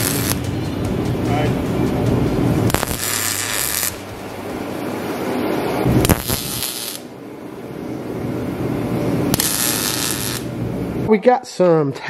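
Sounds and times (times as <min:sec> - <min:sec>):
welder hissing: 0:00.0 - 0:00.4, 0:02.7 - 0:07.1, 0:09.3 - 0:10.6.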